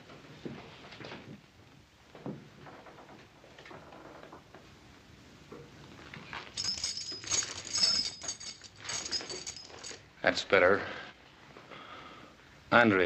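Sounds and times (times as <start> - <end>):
metal shackle chain jangling: 6.5 - 10.1.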